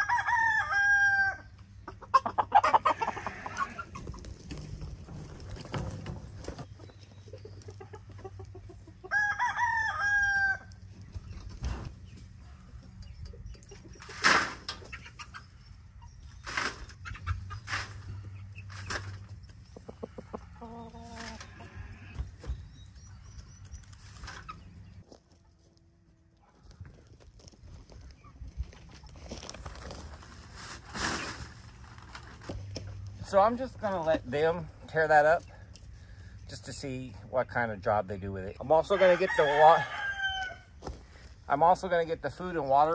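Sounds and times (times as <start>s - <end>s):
rooster crowing: 0.0s - 1.5s, 9.1s - 10.7s, 38.9s - 40.7s.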